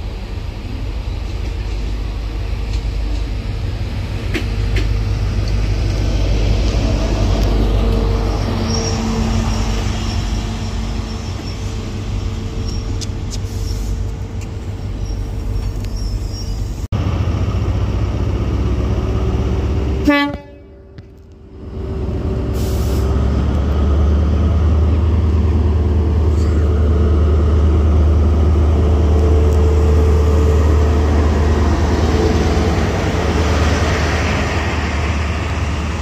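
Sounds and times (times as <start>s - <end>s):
approaching train engine hum: 0.0s - 36.0s
train diesel engine running: 0.0s - 36.0s
train horn toot: 20.0s - 21.0s.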